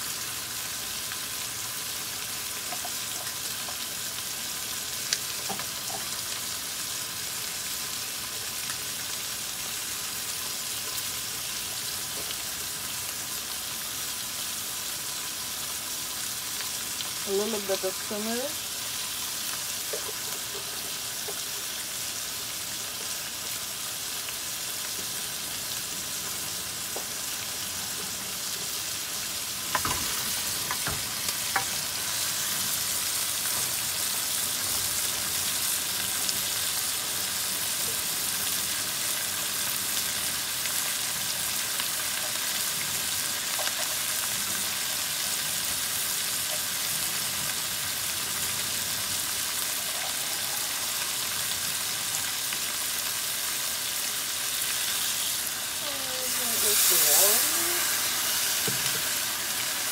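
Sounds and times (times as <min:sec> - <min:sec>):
fish sizzling in a pan: 0:00.0 - 0:59.9
wooden spoon knocking a pan: 0:29.7 - 0:31.7.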